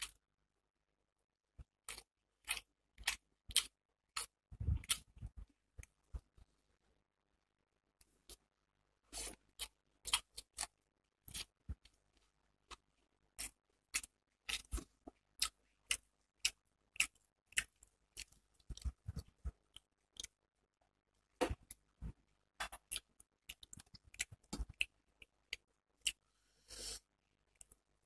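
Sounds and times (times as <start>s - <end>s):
wet eating smacks and clicks: 1.6s - 6.3s, 9.2s - 12.0s, 12.7s - 20.4s, 22.6s - 26.2s.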